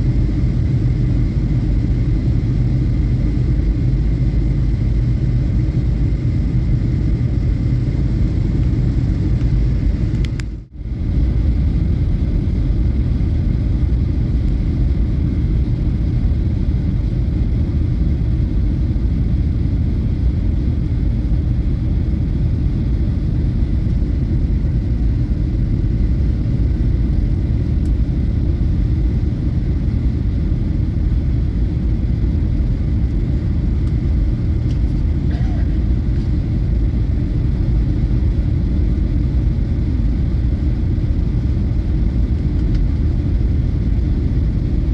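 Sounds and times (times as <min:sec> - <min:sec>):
jet engines and rushing air: 0:00.0 - 0:44.9.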